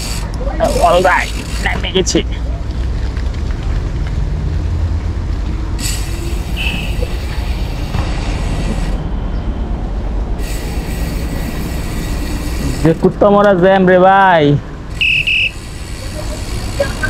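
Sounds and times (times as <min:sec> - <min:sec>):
diesel truck engines rumbling: 0:00.0 - 0:17.0
high-pitched air hisses: 0:05.8 - 0:09.0.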